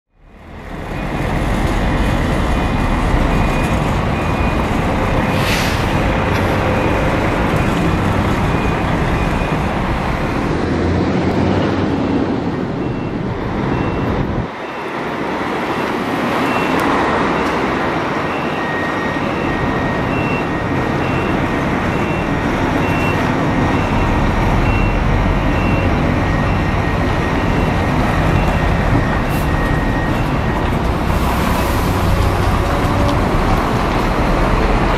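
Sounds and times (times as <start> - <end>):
diesel bus engine rumble: 0.1 - 34.9.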